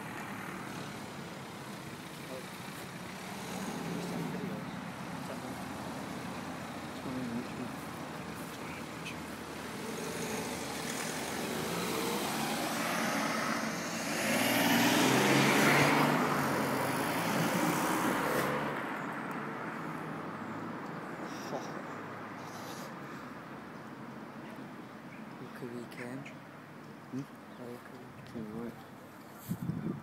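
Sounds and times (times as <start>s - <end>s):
car passing by: 0.0s - 20.8s.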